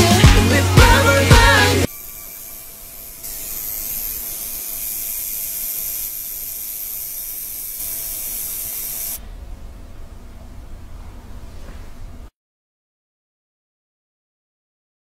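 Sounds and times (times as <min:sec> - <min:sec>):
tattoo machine buzzing: 0:00.0 - 0:09.2.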